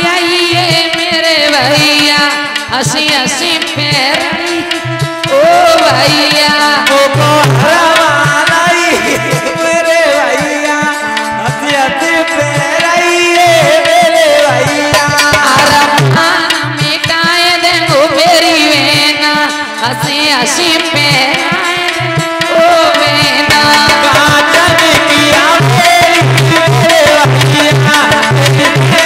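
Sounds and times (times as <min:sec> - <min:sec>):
hand drum beat: 0:00.0 - 0:29.0
ornamented instrumental melody: 0:06.9 - 0:16.8.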